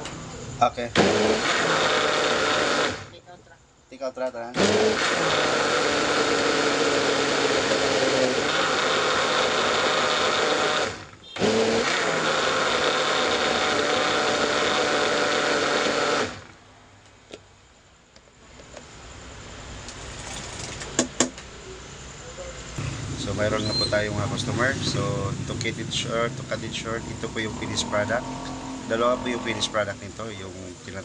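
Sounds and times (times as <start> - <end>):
electric blender running: 1.0 - 3.2, 4.6 - 16.6, 22.8 - 31.0.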